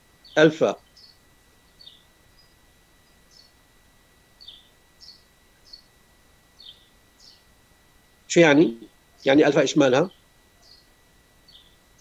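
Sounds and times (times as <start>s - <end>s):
faint high whine: 0.0s - 12.0s
faint bird chirps: 0.1s - 3.7s, 4.3s - 7.6s, 8.7s - 12.0s.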